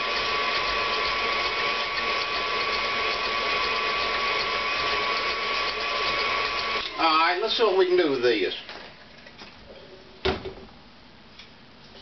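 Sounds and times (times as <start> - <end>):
whisk ticking: 0.0 - 7.1
stand mixer motor whine: 0.0 - 7.8.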